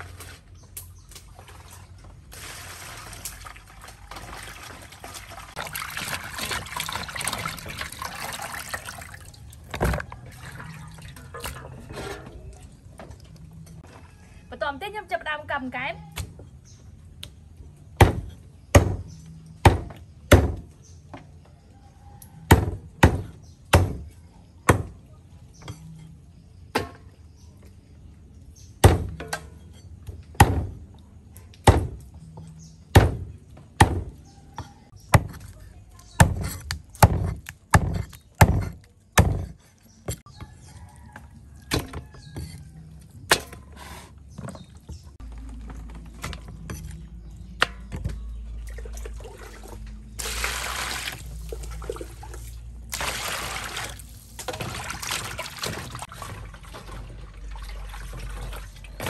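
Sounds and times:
cleaver chopping on wooden block: 0:36.2 - 0:40.2.

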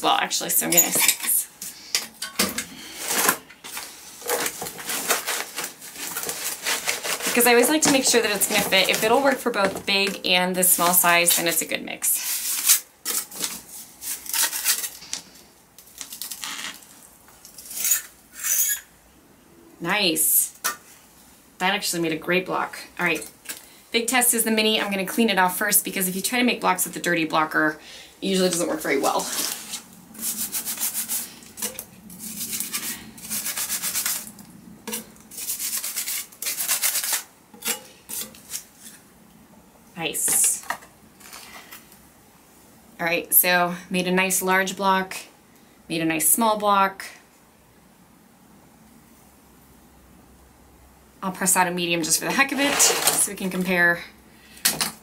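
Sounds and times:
metal scoop scraping soil: 0:02.8 - 0:10.1, 0:28.4 - 0:34.3, 0:34.9 - 0:39.0, 0:52.3 - 0:53.4.

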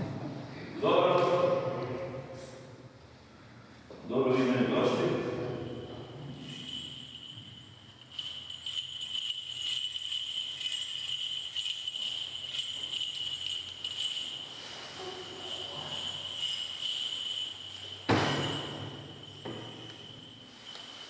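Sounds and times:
high-pitched ringing tone: 0:05.5 - 0:21.0
small metal bells jingling: 0:05.5 - 0:21.0.

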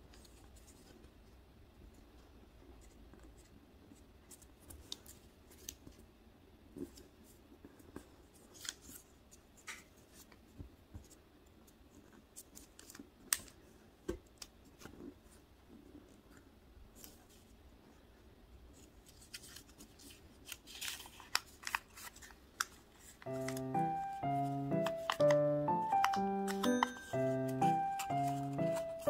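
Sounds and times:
paper crackling and tapping: 0:06.8 - 0:15.2, 0:18.7 - 0:29.0.

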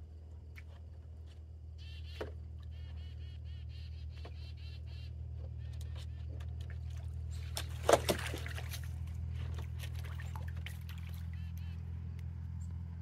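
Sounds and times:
low steady hum: 0:00.0 - 0:13.0
water splashing in paddling pool: 0:06.2 - 0:11.6.

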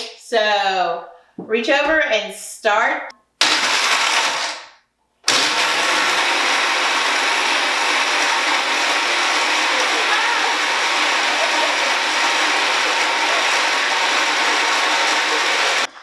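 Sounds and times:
blender whirring: 0:03.4 - 0:04.7, 0:05.3 - 0:16.0.

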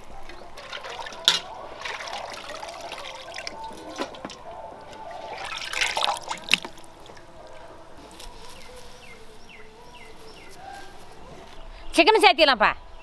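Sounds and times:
water splashing in metal pot: 0:00.1 - 0:06.9.

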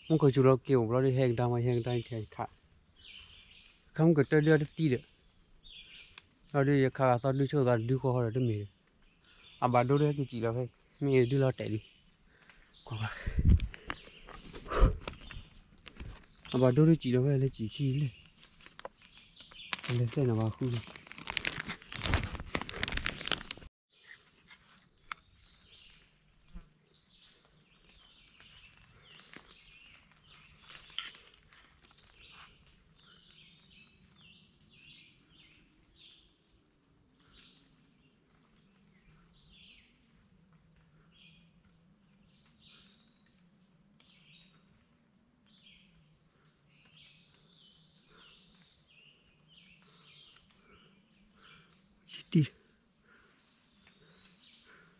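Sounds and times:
insect chirps: 0:00.0 - 0:54.9
insect chorus drone: 0:00.0 - 0:54.9
loud rustling: 0:19.6 - 0:23.7.

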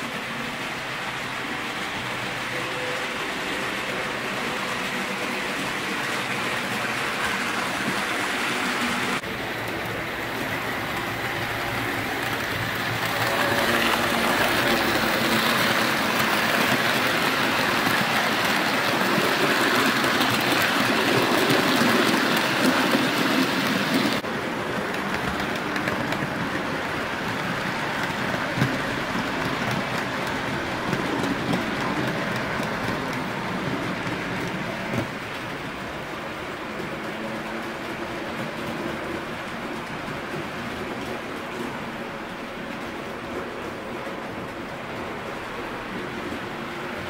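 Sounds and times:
model train wheels clattering on rails: 0:04.5 - 0:41.9.

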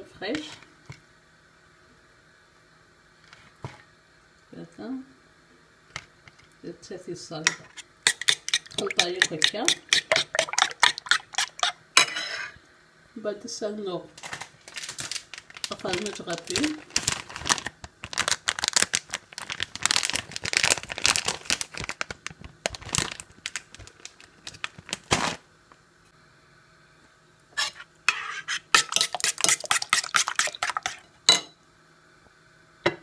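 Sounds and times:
fork beating eggs in bowl: 0:07.5 - 0:12.5, 0:27.6 - 0:31.1.

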